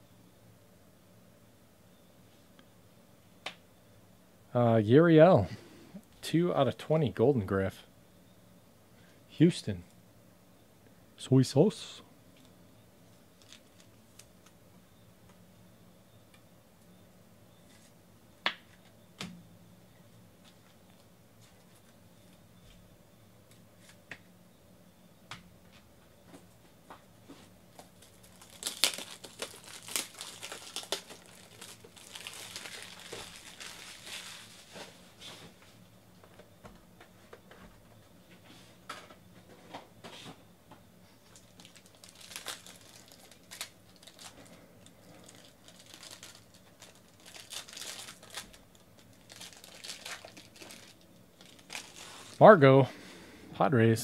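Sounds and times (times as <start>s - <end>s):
plastic wrapping crinkling and tearing: 13.4s - 14.3s, 27.7s - 35.0s, 41.3s - 52.4s.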